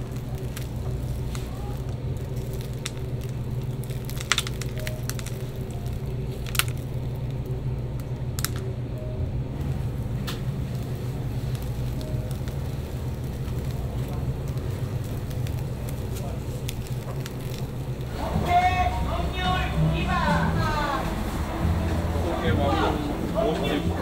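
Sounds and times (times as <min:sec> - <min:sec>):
baked crust cracking: 0:00.0 - 0:18.2
steady low hum: 0:00.0 - 0:24.0.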